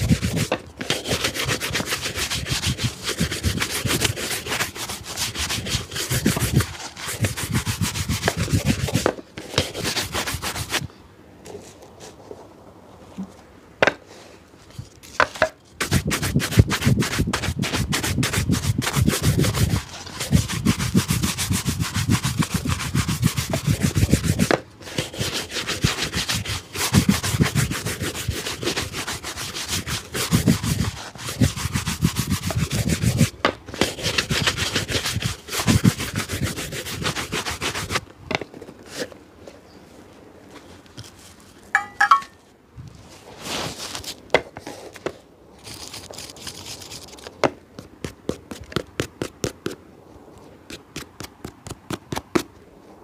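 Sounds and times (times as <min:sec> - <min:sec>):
hand scrubbing a shoe: 0:00.0 - 0:10.9, 0:15.8 - 0:38.0, 0:45.6 - 0:49.8.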